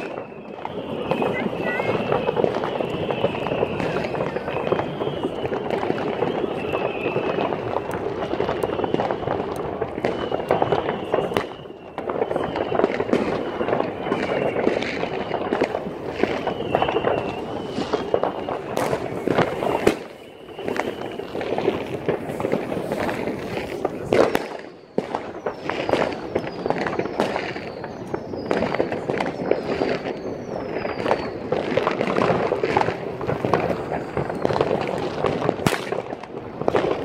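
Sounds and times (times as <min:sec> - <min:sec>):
short falling whistles: 0:00.0 - 0:07.7, 0:10.0 - 0:22.0, 0:24.8 - 0:32.2
fireworks bangs and crackles: 0:00.0 - 0:37.0
rumble of distant explosions: 0:00.0 - 0:37.0.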